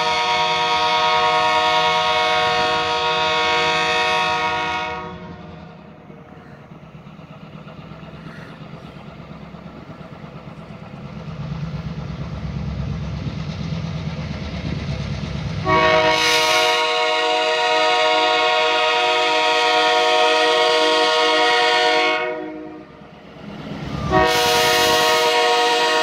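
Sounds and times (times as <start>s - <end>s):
locomotive horn: 0.0s - 5.5s, 15.6s - 23.0s, 23.9s - 26.0s
diesel engine rumble: 5.0s - 15.9s.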